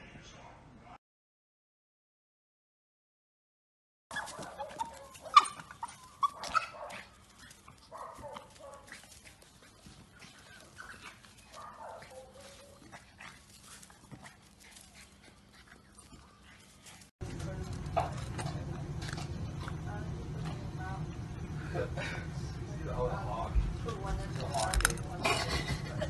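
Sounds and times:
dog barking and whining: 0:04.1 - 0:07.1.

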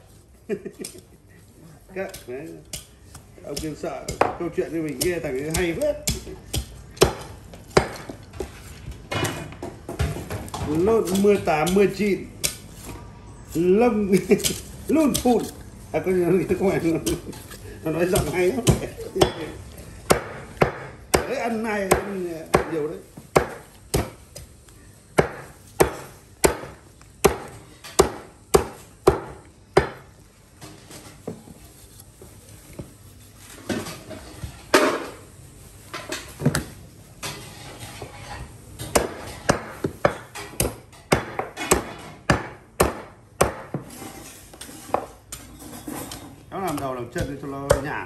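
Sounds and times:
blade chopping meat and bone: 0:02.0 - 0:08.2, 0:10.7 - 0:12.9, 0:14.1 - 0:15.6, 0:16.6 - 0:24.5, 0:25.2 - 0:30.1, 0:38.8 - 0:43.9, 0:46.6 - 0:48.0.

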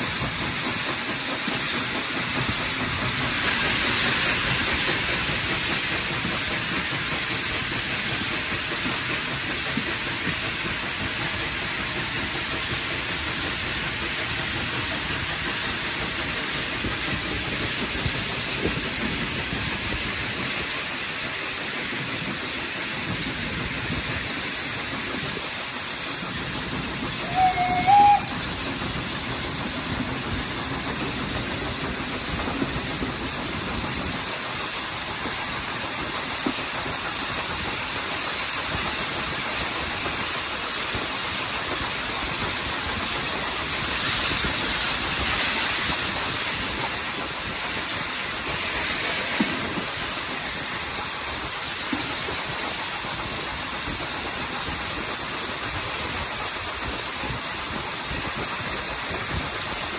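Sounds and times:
steam hissing from drain cocks: 0:00.0 - 0:59.9
steam whistle toots: 0:27.1 - 0:28.6.

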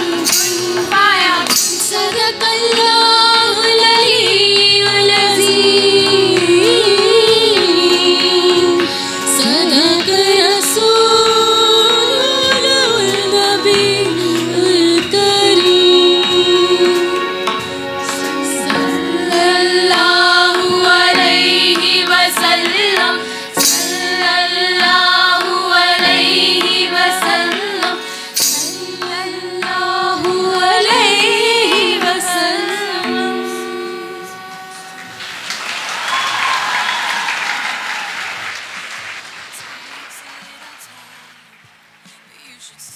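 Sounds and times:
women singing: 0:00.0 - 0:35.2
harmonium: 0:00.0 - 0:35.3
tabla: 0:00.0 - 0:37.3
keyboard: 0:00.0 - 0:42.9
audience applause: 0:35.0 - 0:42.2.

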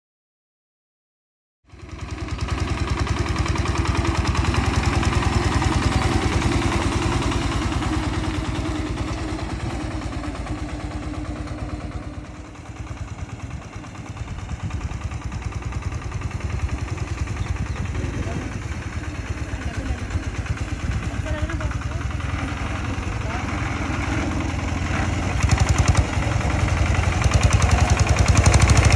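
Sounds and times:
small tractor engine running: 0:01.7 - 0:28.9.

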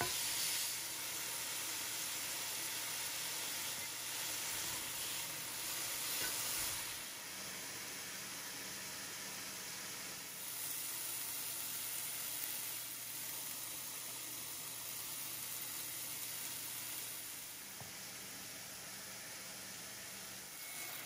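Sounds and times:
chicken sizzling in frying pan: 0:00.0 - 0:21.0.

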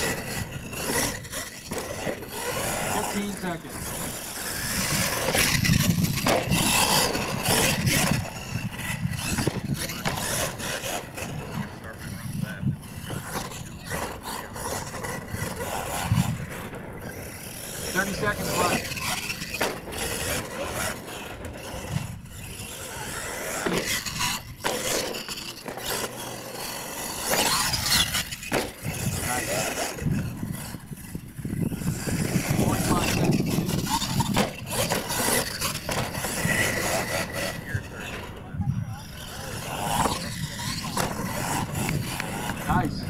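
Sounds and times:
toy truck driving on dirt: 0:00.0 - 0:43.0.

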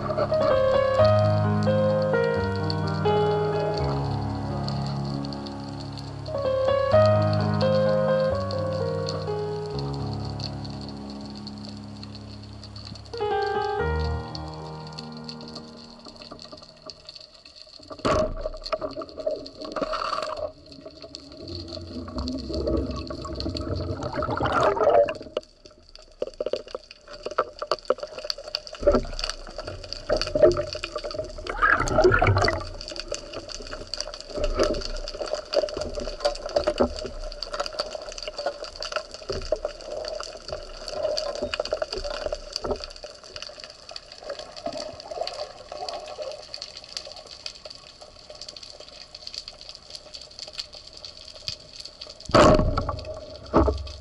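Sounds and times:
crackling clicks: 0:00.0 - 0:54.0
water rushing and bubbling: 0:00.0 - 0:54.0.

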